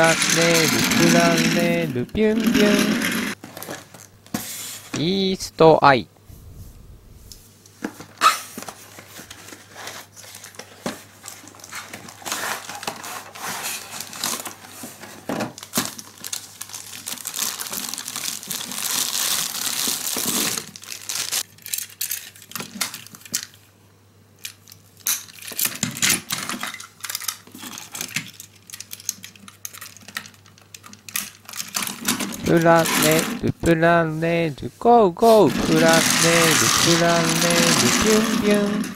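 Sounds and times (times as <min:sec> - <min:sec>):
plastic toy cars clicking and clattering: 0:00.0 - 0:01.8, 0:02.4 - 0:03.9, 0:08.6 - 0:20.8, 0:21.4 - 0:23.6, 0:24.4 - 0:33.4, 0:35.5 - 0:38.9
plastic wrapping crinkling and tearing: 0:08.2 - 0:23.6, 0:24.6 - 0:33.2, 0:35.6 - 0:38.7.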